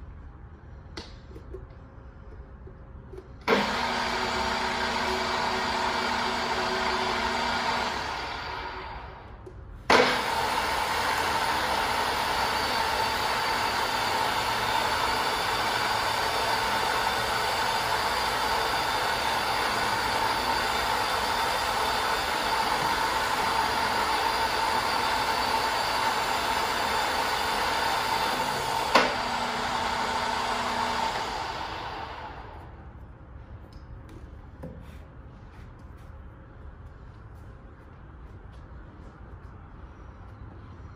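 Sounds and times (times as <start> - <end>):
drill press humming: 3.4 - 9.3, 9.9 - 32.8.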